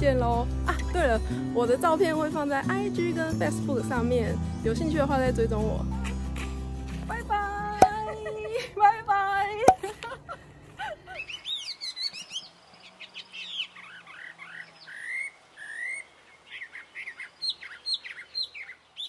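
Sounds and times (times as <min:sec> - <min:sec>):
birds chirping: 0:11.1 - 0:19.0.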